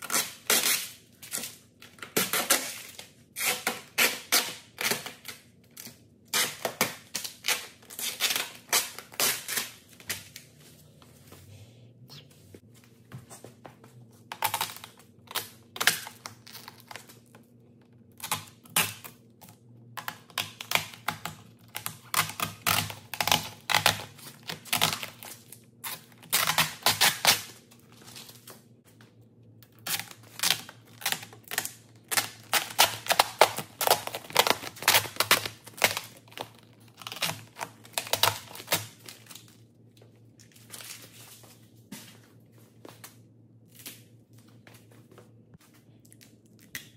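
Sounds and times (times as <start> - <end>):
plastic film peeling and crumpling: 29.8 - 39.5.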